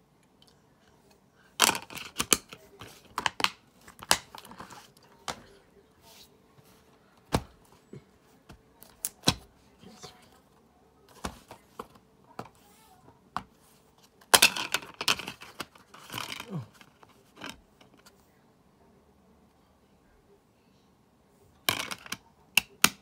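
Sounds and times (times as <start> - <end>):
plastic cases clicking and knocking: 1.6 - 5.4.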